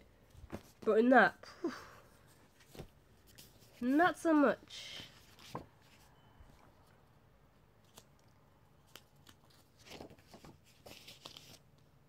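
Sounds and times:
paper rustling: 5.0 - 6.7, 8.9 - 11.8.

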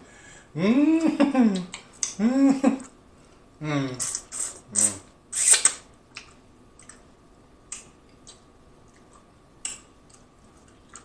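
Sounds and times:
lip smacks and mouth clicks: 1.6 - 2.2, 4.0 - 7.1, 7.7 - 11.0
person chewing: 4.0 - 7.1, 7.7 - 11.0.

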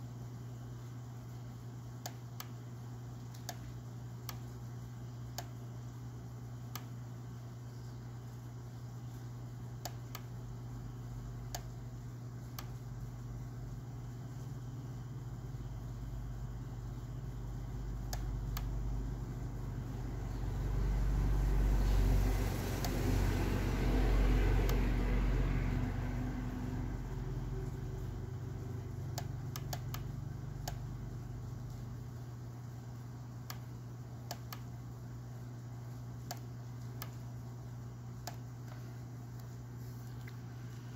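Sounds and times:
steady low hum: 0.0 - 40.9
light clicks: 3.3 - 4.5, 6.7 - 7.0, 29.1 - 30.8, 36.2 - 37.2, 38.2 - 39.6.

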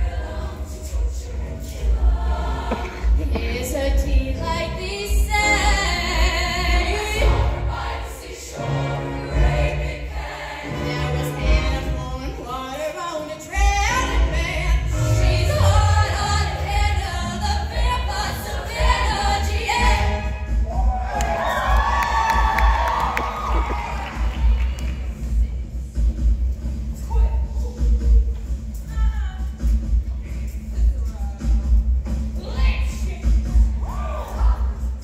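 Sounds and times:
choir singing in harmony: 0.0 - 12.5, 13.8 - 24.5.

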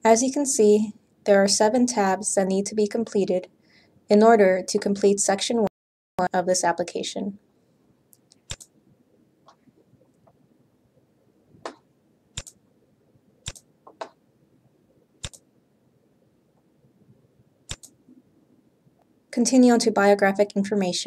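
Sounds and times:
computer mouse clicking: 8.2 - 8.7, 12.4 - 12.6, 13.4 - 14.2, 15.2 - 15.5, 17.7 - 18.0.

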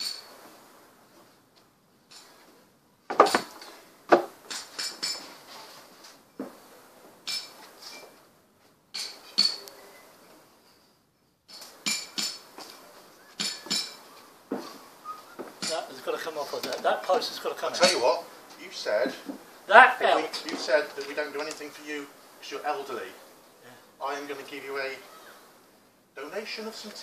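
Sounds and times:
timber knocking and clattering: 3.1 - 5.5.

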